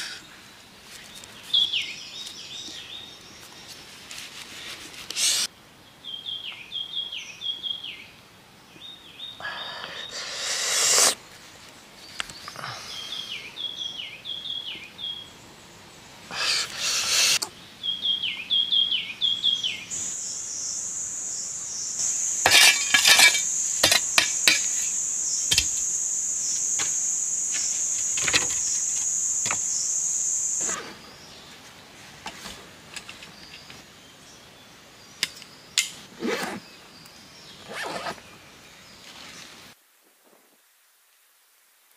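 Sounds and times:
high-pitched insect buzz: 0:10.1 - 0:11.2, 0:19.9 - 0:30.8
bird chirping: 0:12.1 - 0:15.4, 0:16.4 - 0:31.6.

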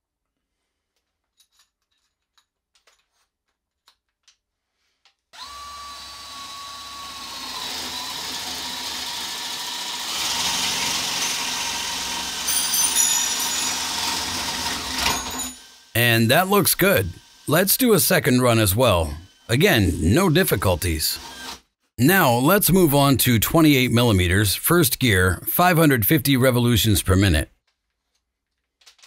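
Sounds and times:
drill bit rasping into wood: 0:05.4 - 0:12.5, 0:13.3 - 0:15.8, 0:21.2 - 0:21.6
drill motor whine: 0:05.4 - 0:12.5, 0:13.2 - 0:15.9, 0:17.0 - 0:17.5, 0:19.1 - 0:19.5, 0:21.1 - 0:21.6.

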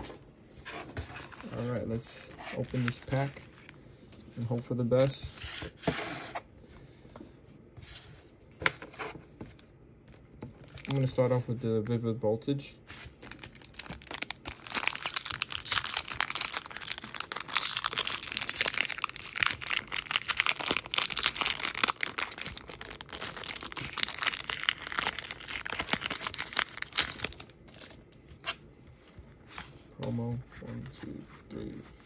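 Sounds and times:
foil wrapper crinkling: 0:13.0 - 0:28.0.

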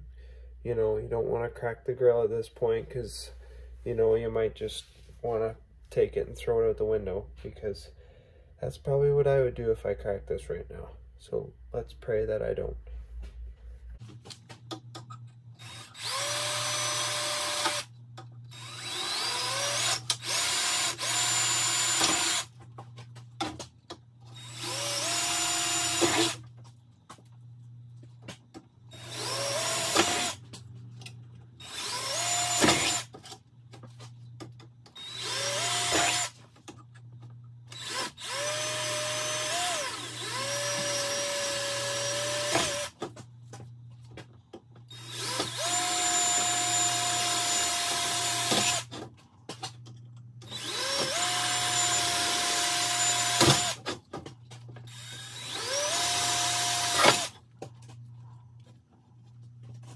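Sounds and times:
cordless drill whining: 0:15.6 - 0:17.9, 0:18.5 - 0:22.5, 0:24.4 - 0:26.4, 0:28.9 - 0:30.4, 0:31.6 - 0:33.1, 0:35.0 - 0:36.4, 0:37.7 - 0:42.9, 0:44.9 - 0:49.0, 0:50.4 - 0:53.9, 0:54.9 - 0:57.3
drill click: 0:18.5 - 0:22.5, 0:34.9 - 0:36.4, 0:44.9 - 0:49.0, 0:50.4 - 0:54.0, 0:54.8 - 0:57.4.

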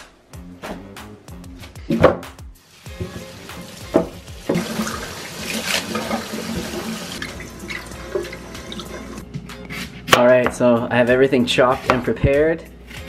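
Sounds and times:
tap water splashing into sink: 0:02.9 - 0:09.1.

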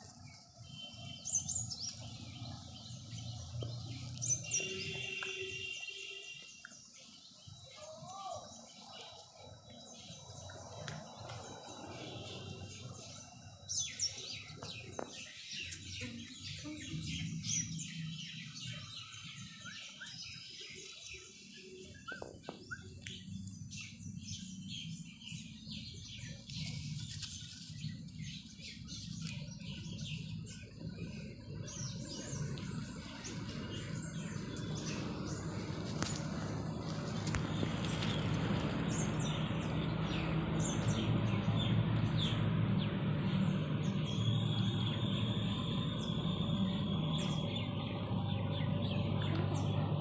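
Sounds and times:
small birds chirping: 0:00.0 - 0:50.0
low background rumble: 0:27.7 - 0:50.0.

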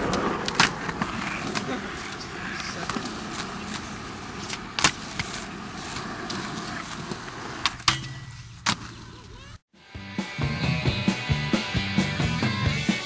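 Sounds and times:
skateboard wheels rolling on concrete: 0:00.0 - 0:09.6.

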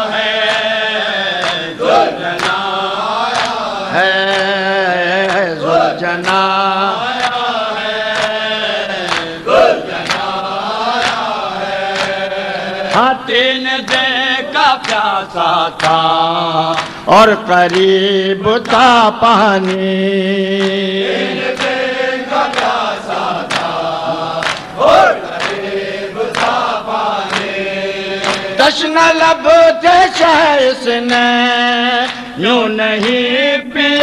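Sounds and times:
men chanting over microphone: 0:00.0 - 0:34.0
hands slapping chests: 0:01.4 - 0:02.6, 0:03.3 - 0:03.6, 0:08.1 - 0:08.4, 0:09.1 - 0:11.3, 0:11.9 - 0:12.2, 0:16.7 - 0:17.0, 0:23.4 - 0:23.8, 0:24.4 - 0:25.7, 0:26.3 - 0:26.6, 0:28.2 - 0:28.5.

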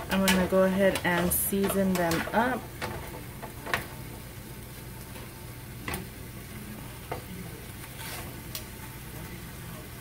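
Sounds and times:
metal tongs clicking on pan: 0:00.0 - 0:03.9
chicken sizzling in frying pan: 0:00.0 - 0:10.0.

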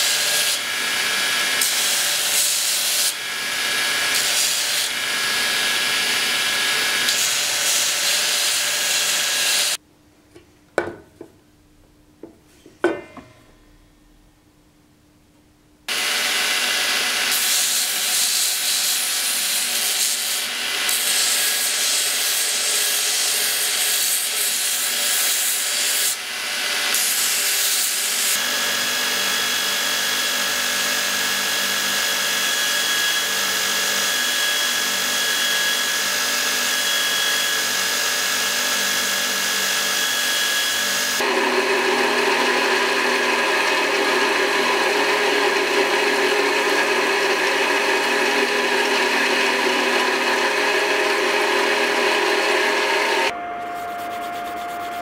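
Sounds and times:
belt grinder grinding steel: 0:00.0 - 0:09.8, 0:15.9 - 0:28.4, 0:39.5 - 0:55.0.

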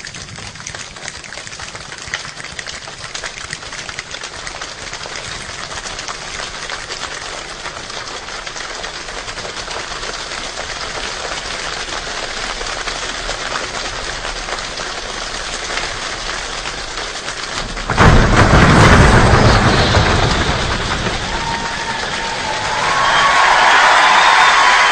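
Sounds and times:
choir imitating rainstorm: 0:17.5 - 0:24.9.

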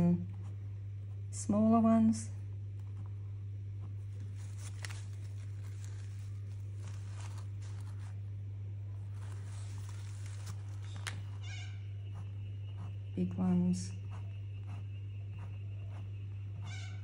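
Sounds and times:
low hum: 0:00.0 - 0:17.0.

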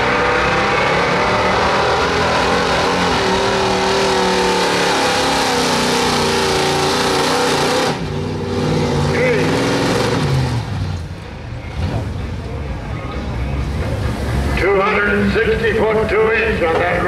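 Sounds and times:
truck engine revving under load: 0:00.0 - 0:12.6.

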